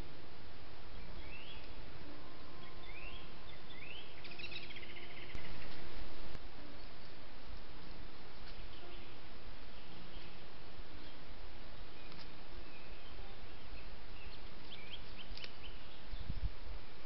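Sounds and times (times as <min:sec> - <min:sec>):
microphone hiss: 0:00.0 - 0:17.0
bird chirps: 0:00.9 - 0:06.0, 0:08.4 - 0:16.4
bird trill: 0:00.9 - 0:06.0.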